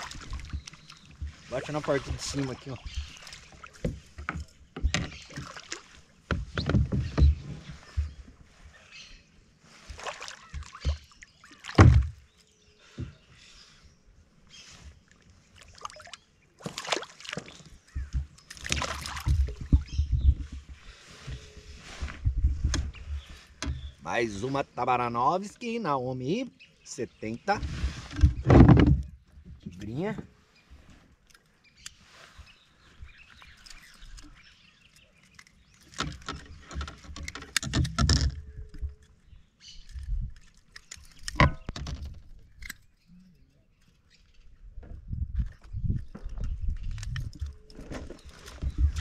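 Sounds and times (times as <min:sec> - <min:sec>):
fish and lure clicking and rattling: 0:17.4 - 0:19.9, 0:33.3 - 0:43.0, 0:45.4 - 0:49.0.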